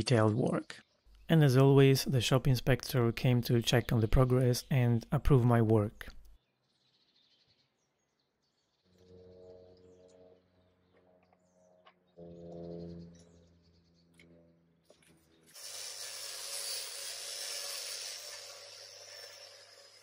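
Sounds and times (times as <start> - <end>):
low steady hum: 9.0 - 15.4.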